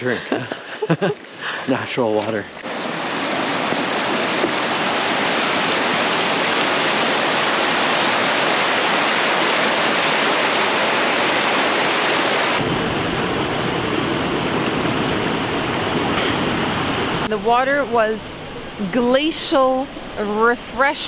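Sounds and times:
stream rushing over boulders: 1.2s - 17.3s.

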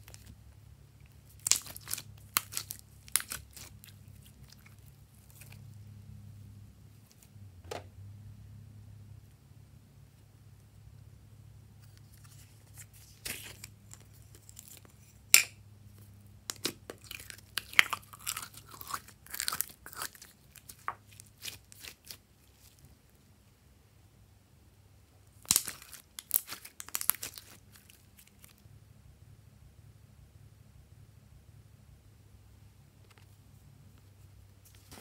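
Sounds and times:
hands squishing slime: 1.1s - 5.7s, 16.5s - 22.8s, 25.4s - 28.6s.

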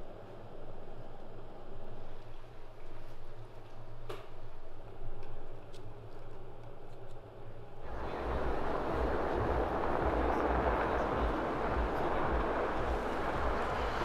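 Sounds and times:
bus engine rumbling: 7.8s - 14.0s.

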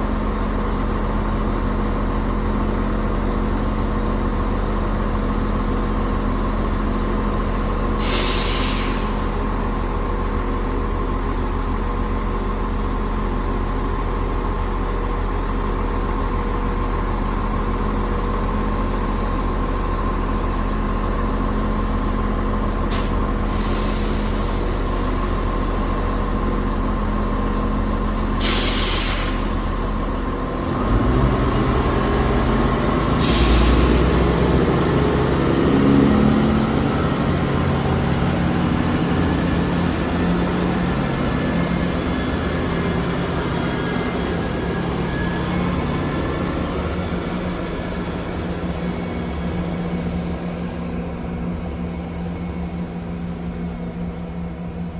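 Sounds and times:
train engine idling drone: 0.0s - 54.9s
air release hisses: 8.0s - 9.3s, 28.4s - 29.7s.

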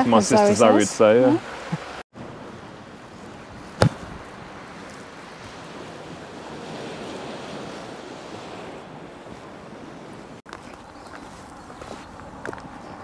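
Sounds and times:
gentle sea waves washing ashore: 0.1s - 10.5s.

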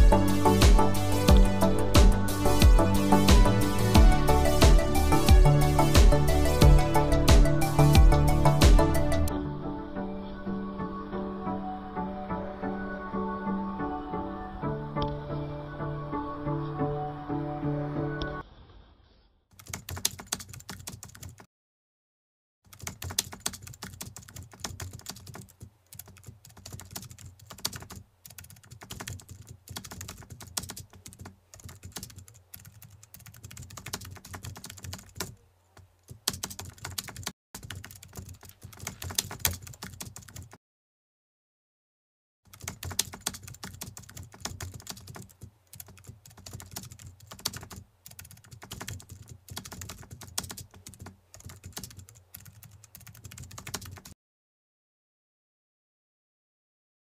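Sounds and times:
keyboard typing clicks: 19.6s - 21.5s, 22.7s - 40.6s, 42.5s - 54.2s.

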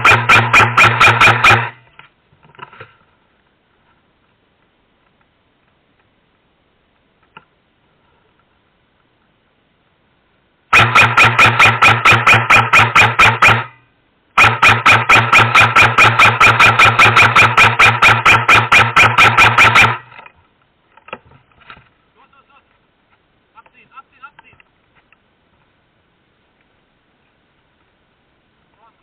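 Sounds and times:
airsoft gun firing full-auto: 0.0s - 1.8s, 10.7s - 13.8s, 14.4s - 20.3s.

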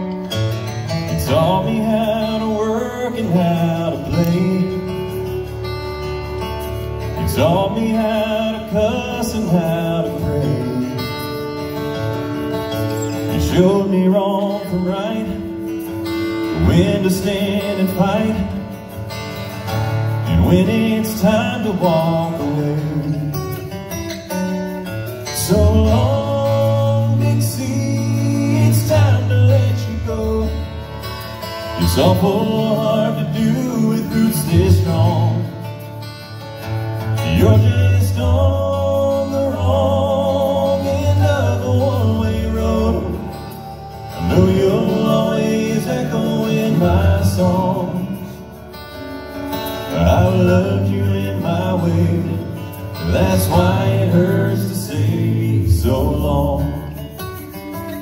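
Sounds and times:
strummed acoustic guitar: 0.0s - 58.0s
male group singing in harmony: 1.2s - 5.3s, 7.2s - 11.9s, 16.4s - 18.9s, 20.2s - 23.6s, 25.4s - 35.7s, 37.0s - 48.6s, 49.6s - 57.1s
beatboxed percussion: 30.5s - 58.0s.

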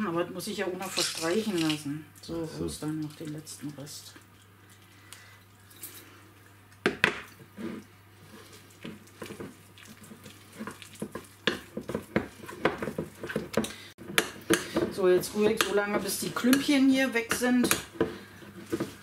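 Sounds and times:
spoon stirring thick icing: 8.2s - 19.0s.

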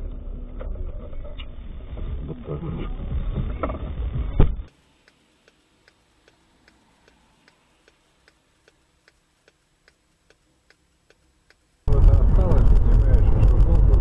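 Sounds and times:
faint even ticking: 4.7s - 14.0s.

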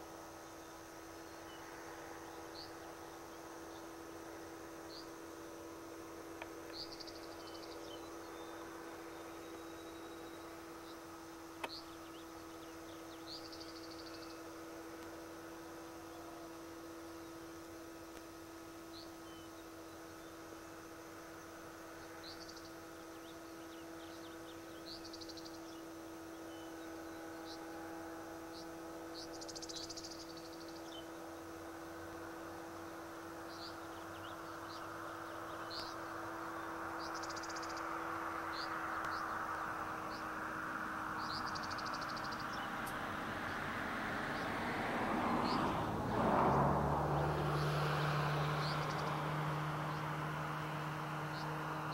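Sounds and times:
steady hum: 0.0s - 51.9s
bird chirps: 6.6s - 14.5s, 32.8s - 40.5s, 41.1s - 43.0s, 47.6s - 50.2s.

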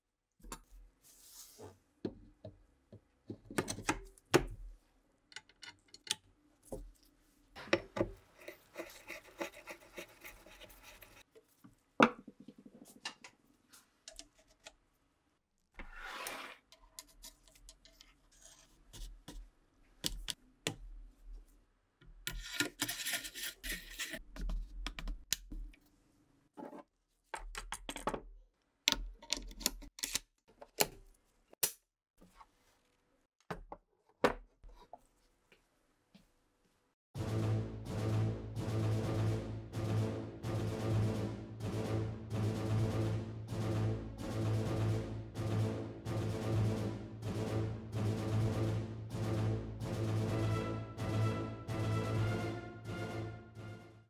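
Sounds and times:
metal scraping and rubbing: 8.2s - 11.3s.

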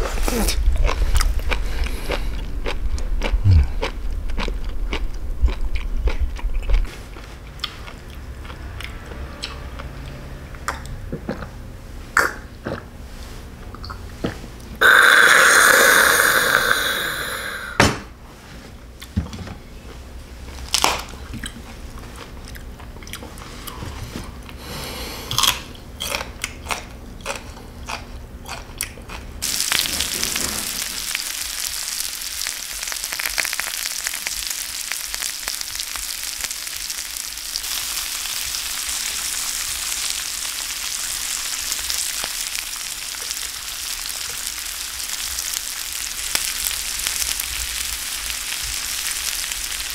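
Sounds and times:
chewing and crunching: 0.0s - 11.6s, 21.0s - 24.6s, 25.3s - 30.9s
meat sizzling in a pan: 29.4s - 49.9s.

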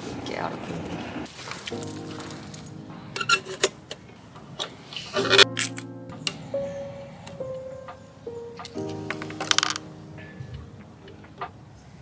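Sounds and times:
lantern rustle and click: 1.3s - 6.3s, 8.6s - 9.9s
background music with held notes: 1.8s - 12.0s.

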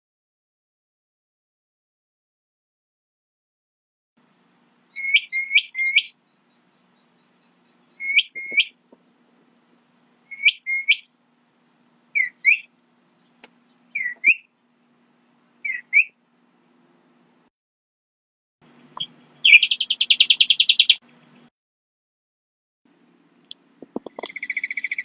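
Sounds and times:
bird chirping: 4.2s - 9.4s, 10.2s - 11.2s, 12.1s - 14.7s, 15.6s - 16.2s, 18.8s - 21.1s, 23.9s - 25.0s
faint low hum: 4.2s - 17.5s.

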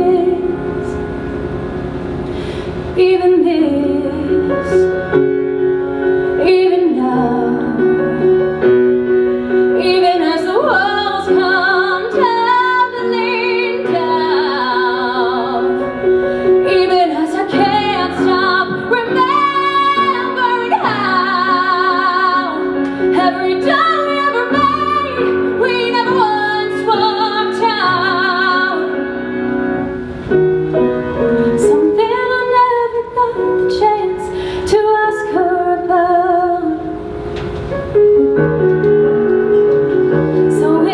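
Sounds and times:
woman singing with vibrato: 0.0s - 1.1s, 2.9s - 5.2s, 6.4s - 8.0s, 9.8s - 16.0s, 16.6s - 29.2s, 31.5s - 37.2s, 40.4s - 40.9s
piano accompaniment: 0.0s - 40.9s.

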